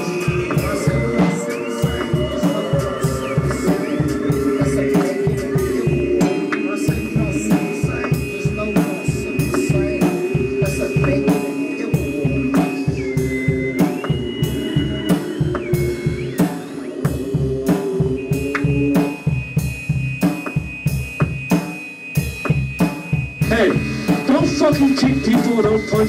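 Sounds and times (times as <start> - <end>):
droning guitar tones: 0.0 - 21.4
high sliding tone: 0.0 - 22.2
drum kit beating: 0.0 - 26.0.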